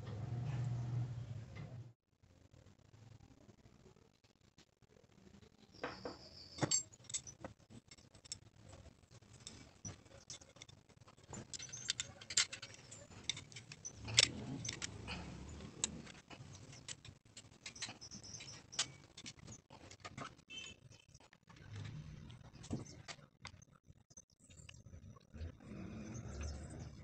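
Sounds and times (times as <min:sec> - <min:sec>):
small metal parts clicking: 0:06.5 - 0:21.9.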